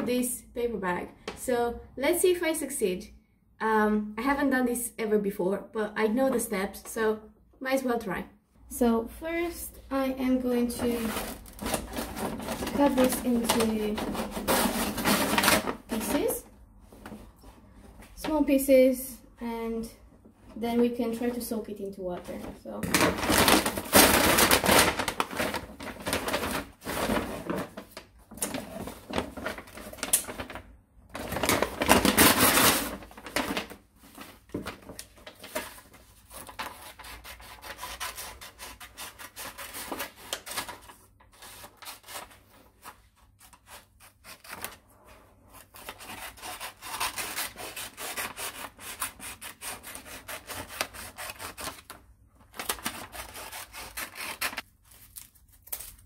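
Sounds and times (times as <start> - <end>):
paper bag crinkling: 10.9 - 16.3, 22.4 - 37.0.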